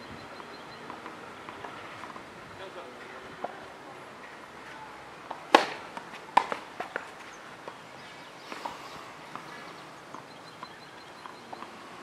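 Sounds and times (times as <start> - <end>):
footsteps on clay court: 3.0 - 12.0
racket striking tennis ball: 4.3 - 7.2.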